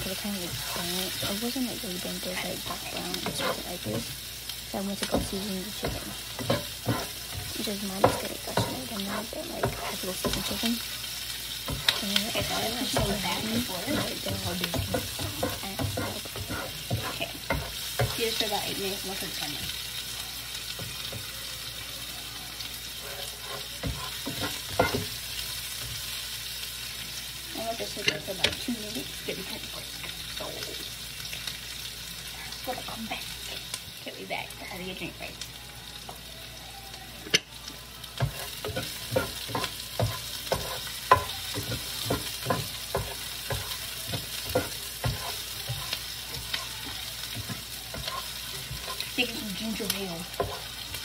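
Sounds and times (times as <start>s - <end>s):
spatula scraping a pan: 0.0s - 4.1s, 5.0s - 19.4s, 22.9s - 26.1s, 38.2s - 50.9s
onions sizzling in a pot: 0.0s - 51.0s.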